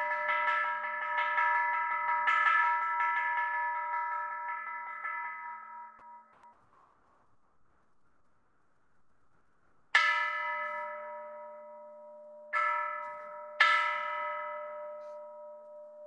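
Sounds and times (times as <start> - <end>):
temple bell ringing: 0.0 - 7.0, 9.9 - 16.0.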